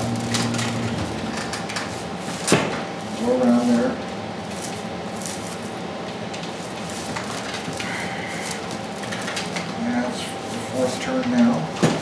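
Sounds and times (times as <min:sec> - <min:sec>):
steady background hum: 0:00.0 - 0:12.0
dry straw rustling and crackling: 0:04.4 - 0:09.7.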